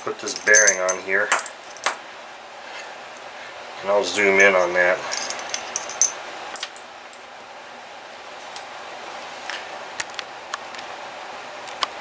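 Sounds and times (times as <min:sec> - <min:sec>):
steady faint hiss: 0:00.0 - 0:12.0.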